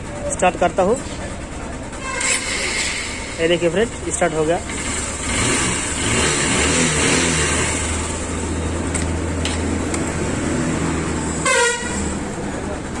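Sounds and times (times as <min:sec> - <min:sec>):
motorcycle engine idling: 0:00.0 - 0:06.0, 0:07.6 - 0:10.4.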